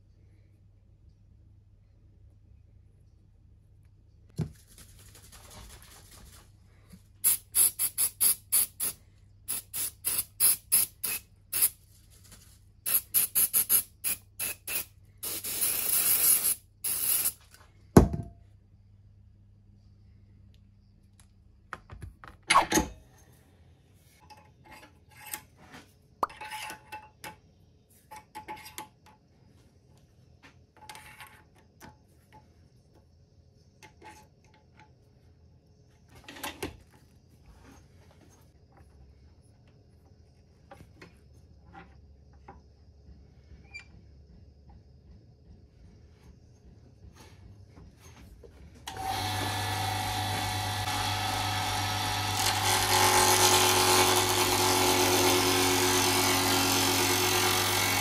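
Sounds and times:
aerosol can spraying: 0:07.2 - 0:11.8, 0:12.9 - 0:17.4.

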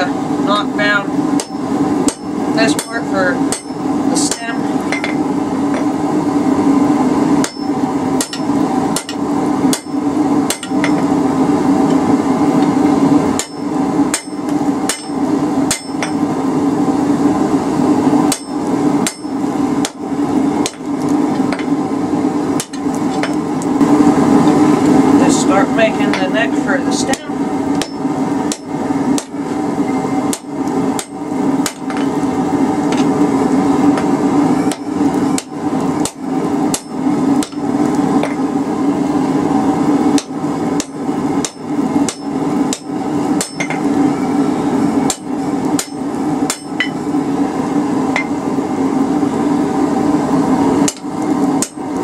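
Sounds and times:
steady low hum: 0:00.0 - 0:52.0
hammer striking anvil: 0:01.4 - 0:05.2, 0:07.4 - 0:11.0, 0:13.4 - 0:16.2, 0:18.3 - 0:20.0, 0:40.2 - 0:43.8, 0:45.1 - 0:47.0.

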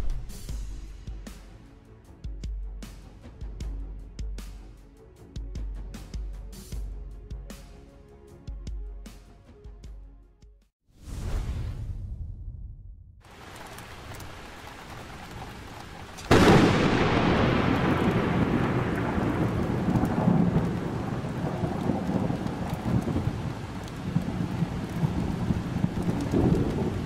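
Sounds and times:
sharp thunderclap: 0:11.0 - 0:27.0
thunder rumbling: 0:11.2 - 0:27.0
heavy rain: 0:13.2 - 0:27.0.

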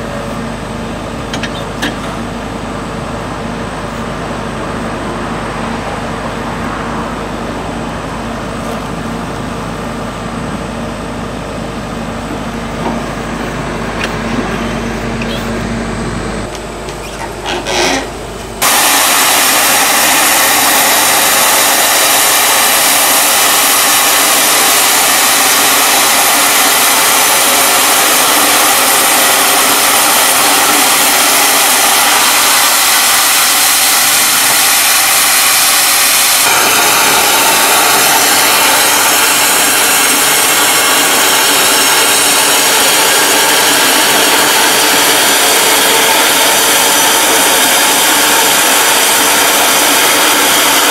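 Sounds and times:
machine hum: 0:00.0 - 0:50.9
band saw cutting log: 0:16.9 - 0:50.9.

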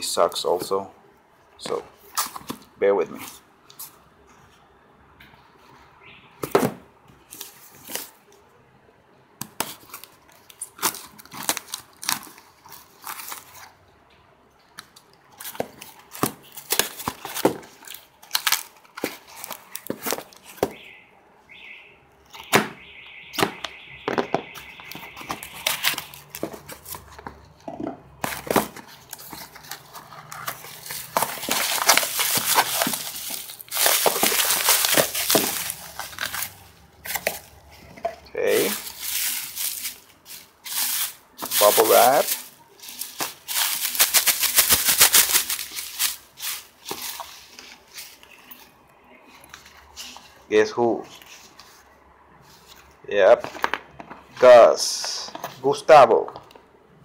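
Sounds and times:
bubble wrap crinkling: 0:09.5 - 0:13.8, 0:14.8 - 0:20.9, 0:24.6 - 0:27.5, 0:28.1 - 0:50.4
cardboard clicks and scrapes: 0:28.2 - 0:48.6.

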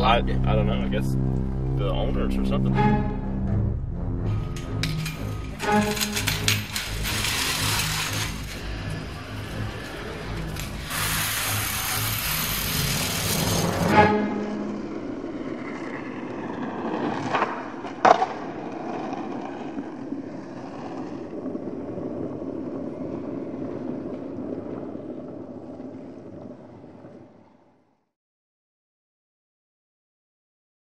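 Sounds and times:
skateboard wheels rolling on asphalt: 0:04.4 - 0:28.1
skateboard clacks: 0:14.7 - 0:27.5.

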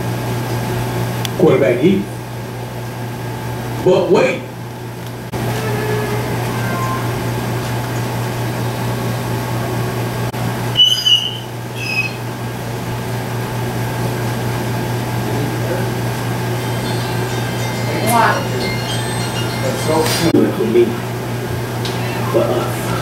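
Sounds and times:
steady low hum: 0:00.0 - 0:23.0
short high-pitched sounds: 0:05.4 - 0:07.3, 0:16.4 - 0:20.4.

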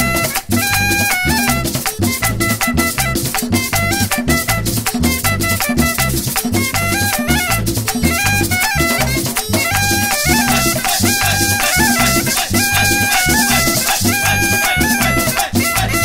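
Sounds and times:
latin carnival dance music: 0:00.0 - 0:16.0
shaken rattle: 0:07.6 - 0:15.9.

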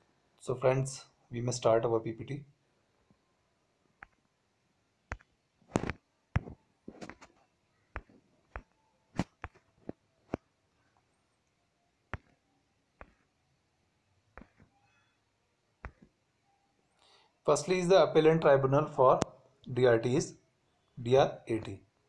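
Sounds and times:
device handling clicks and taps: 0:05.1 - 0:07.3, 0:12.1 - 0:12.4.

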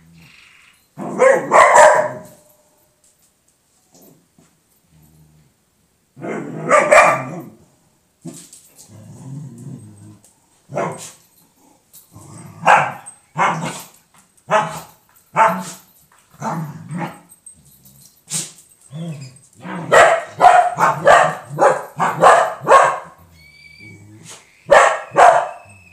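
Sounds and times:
dog barking: 0:01.0 - 0:02.5, 0:06.2 - 0:07.5, 0:10.7 - 0:11.2, 0:12.6 - 0:13.8, 0:14.5 - 0:15.8, 0:19.6 - 0:23.2, 0:24.7 - 0:25.7
dog growling: 0:08.9 - 0:10.3, 0:11.6 - 0:12.7, 0:23.8 - 0:24.4.

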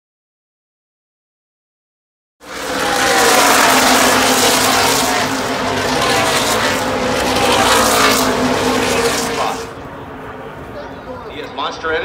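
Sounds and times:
race car engines passing: 0:02.4 - 0:12.0.

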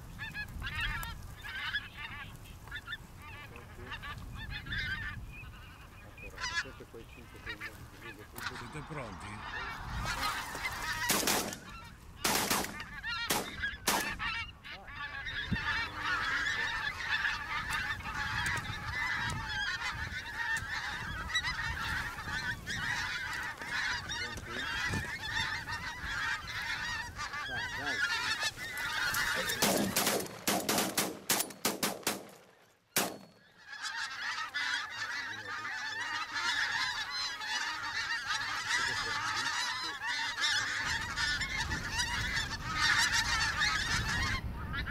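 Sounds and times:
geese honking: 0:00.0 - 0:44.9
shotgun shots: 0:11.0 - 0:14.2, 0:29.6 - 0:33.4.

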